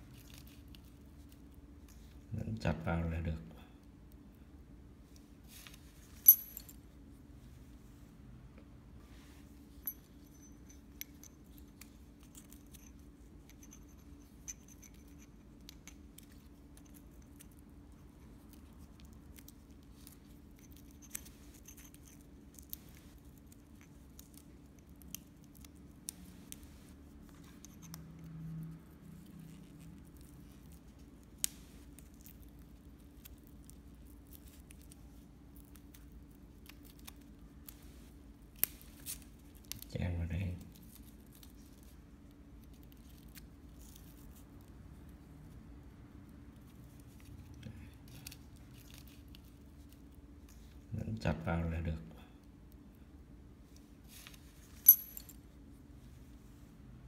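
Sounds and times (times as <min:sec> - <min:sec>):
sharp clicks and small scrapes: 0:10.3 - 0:39.9.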